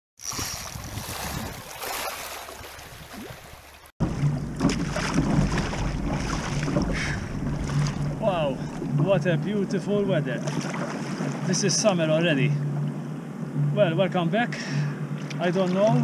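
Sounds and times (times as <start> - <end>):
kayak paddle splashing: 0.2 - 13.0
wind rumbling on microphone: 0.3 - 11.5.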